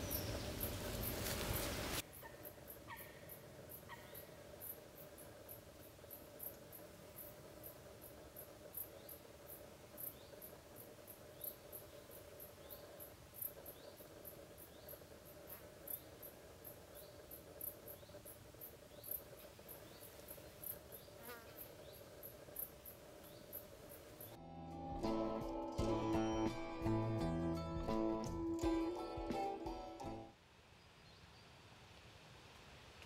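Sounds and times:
insect chirping: 0:00.0 - 0:24.4
guitar music: 0:24.4 - 0:30.3.

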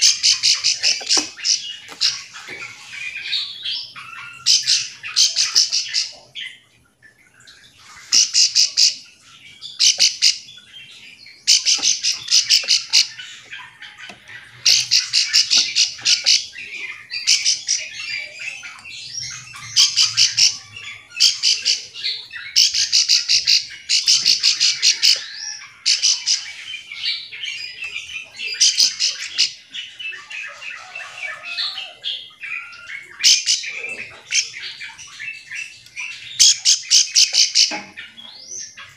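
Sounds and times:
bird ticking call: 0:00.0 - 0:02.2, 0:11.4 - 0:18.0.

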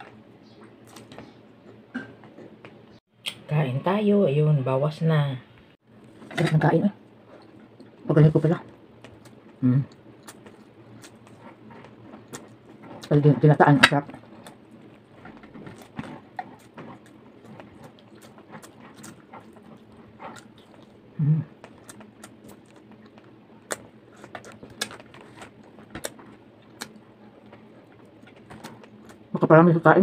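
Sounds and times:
person chewing food: 0:00.0 - 0:03.0, 0:07.1 - 0:08.0, 0:08.6 - 0:29.3
person humming: 0:21.2 - 0:21.5.

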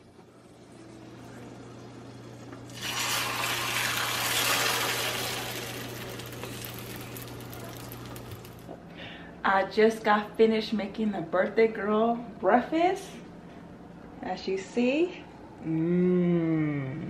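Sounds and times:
steady low hum: 0:00.0 - 0:17.0
egg sizzling in frying pan: 0:02.7 - 0:08.7.

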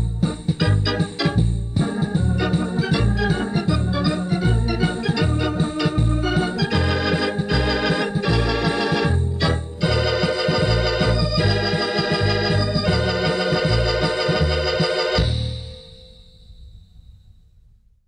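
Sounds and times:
electronic organ playing chords: 0:00.0 - 0:15.8.

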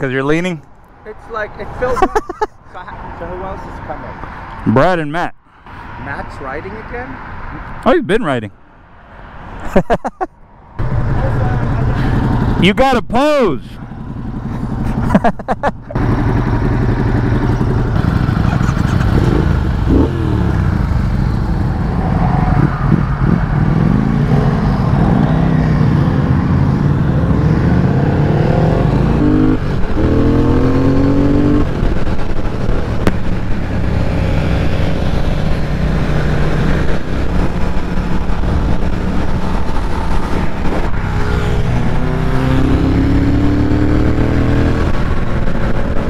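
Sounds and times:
wind and road noise: 0:00.0 - 0:46.0
motorcycle engine accelerating: 0:10.8 - 0:12.8, 0:13.8 - 0:46.0.

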